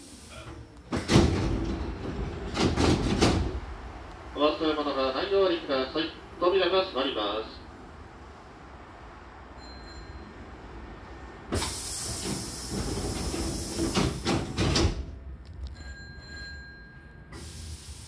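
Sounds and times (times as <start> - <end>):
air hiss: 0.0 - 0.5, 11.5 - 14.6, 17.3 - 18.0
train doors sliding shut: 0.0 - 4.3, 11.4 - 15.9, 17.3 - 18.0.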